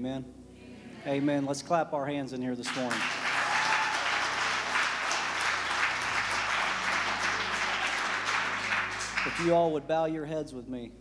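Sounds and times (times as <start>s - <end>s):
crowd clapping: 2.6s - 9.8s.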